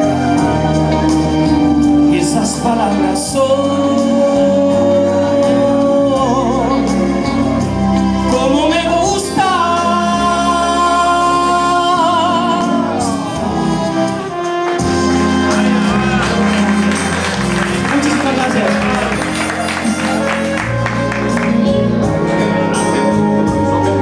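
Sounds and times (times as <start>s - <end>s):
backing music: 0.0s - 24.0s
man singing into microphone: 2.1s - 7.4s, 8.2s - 13.5s.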